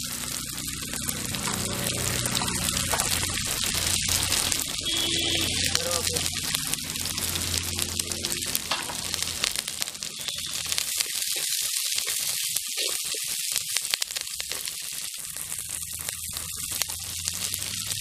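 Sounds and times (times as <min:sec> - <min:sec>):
onions sizzling in hot oil: 0:00.0 - 0:18.0.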